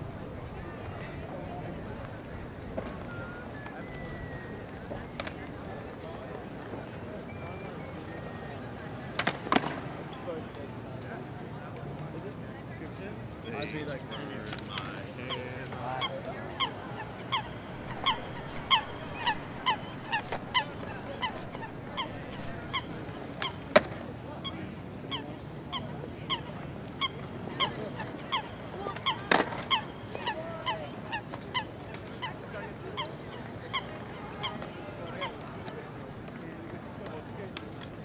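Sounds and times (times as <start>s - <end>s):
short honking calls: 17.3s - 23.1s.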